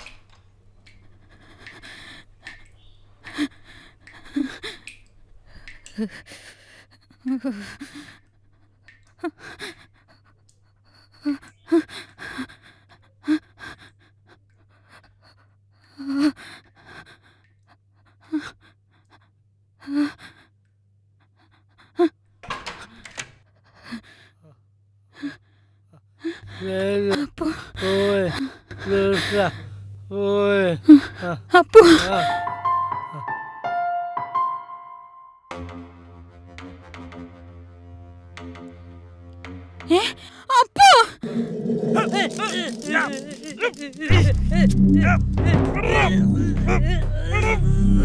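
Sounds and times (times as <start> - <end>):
woman gasping and panting: 30.9 - 32.3, 39.9 - 48.0.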